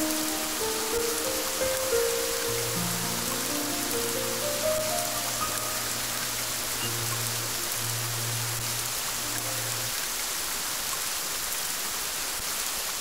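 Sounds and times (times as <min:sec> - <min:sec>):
steady rain: 0:00.0 - 0:13.0
low musical drone: 0:02.4 - 0:10.0.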